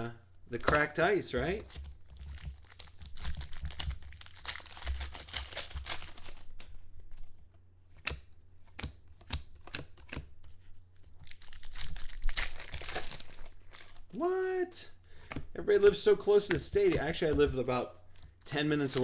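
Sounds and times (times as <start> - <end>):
foil wrapper crinkling and tearing: 1.6 - 6.7, 11.2 - 14.1
cards clicking as handled: 8.0 - 10.3.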